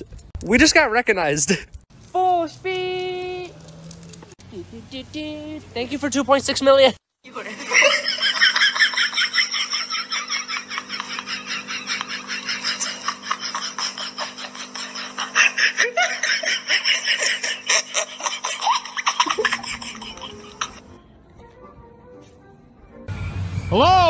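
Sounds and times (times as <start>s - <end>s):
person laughing hard: 7.3s - 20.8s.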